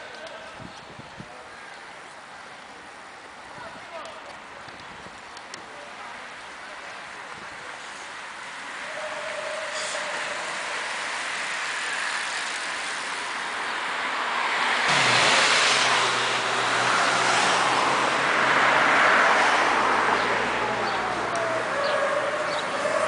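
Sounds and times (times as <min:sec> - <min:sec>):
street noise: 0:00.0 - 0:23.0
cars passing on wet road: 0:02.0 - 0:23.0.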